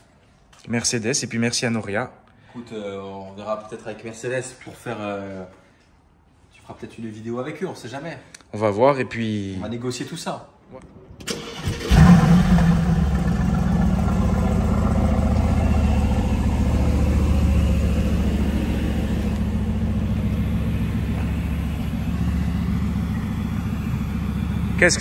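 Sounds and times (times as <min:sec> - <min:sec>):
car engine starting and idling: 0:11.2 - 0:25.0.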